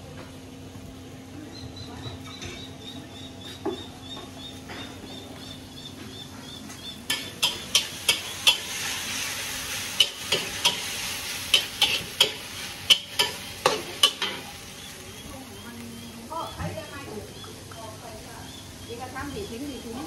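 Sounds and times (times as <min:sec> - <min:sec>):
noodles sizzling in a pan: 0:07.0 - 0:20.0
metal spatula scraping a pan: 0:09.9 - 0:14.5.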